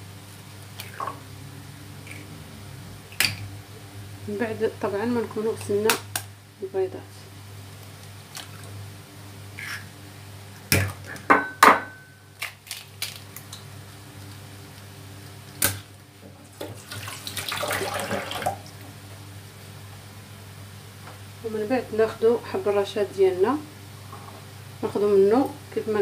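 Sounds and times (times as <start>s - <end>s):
steady low hum: 0.0s - 12.6s
eggs cracked against bowl: 3.1s - 3.5s.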